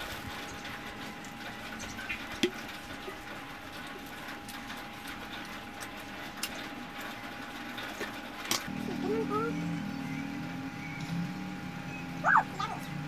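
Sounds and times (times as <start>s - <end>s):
faint hum: 6.2s - 13.0s.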